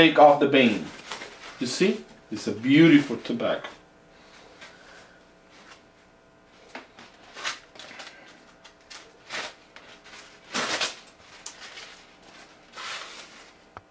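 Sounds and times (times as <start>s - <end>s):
tobacco leaf rustling and crinkling: 0.2s - 3.4s, 7.0s - 13.8s.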